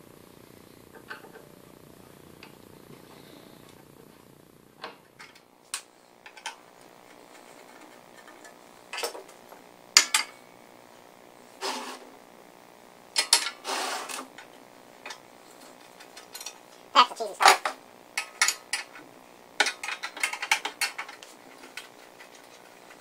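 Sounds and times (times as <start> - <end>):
metal parts clinking and knocking: 19.6 - 23.0.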